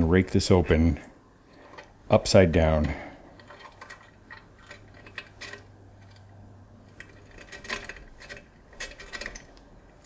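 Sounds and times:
lock pick clicking and scraping: 0:03.3 - 0:10.0.

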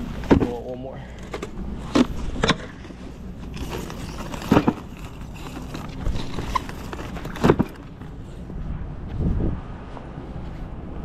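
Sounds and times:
low steady hum: 0:00.0 - 0:11.0
plastic trays set down: 0:03.6 - 0:08.0.

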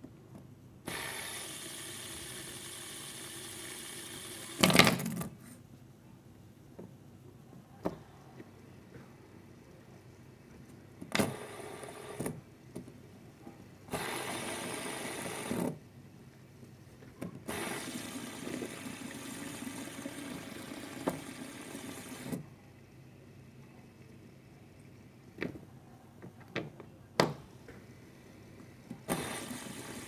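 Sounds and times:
fidget spinner whirring: 0:00.9 - 0:04.8, 0:13.9 - 0:15.7.

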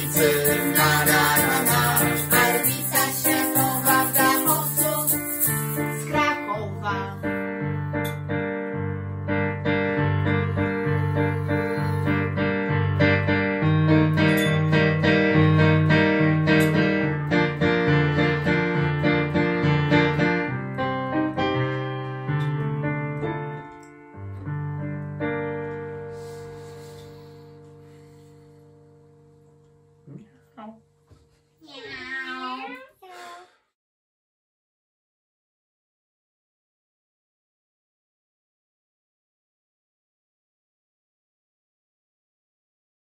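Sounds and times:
shaker rattling: 0:00.0 - 0:06.2
electronic keyboard piano music: 0:00.0 - 0:26.3.

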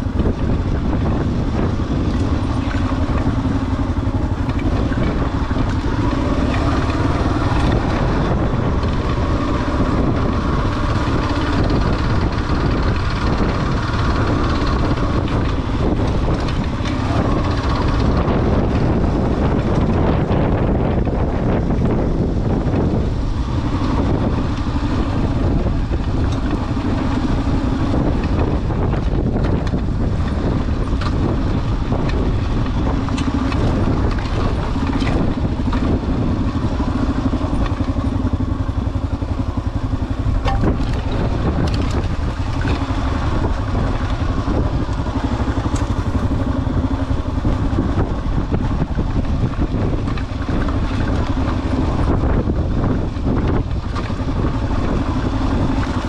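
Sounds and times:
motorcycle engine running: 0:00.0 - 0:56.0
wind rumble on microphone: 0:00.0 - 0:56.0
scattered knocks: 0:40.4 - 0:41.2.

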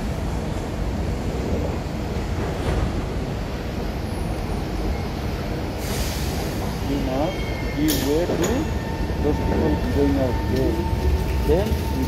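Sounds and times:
train rumble: 0:00.0 - 0:12.0
train brake hiss: 0:05.8 - 0:08.8.

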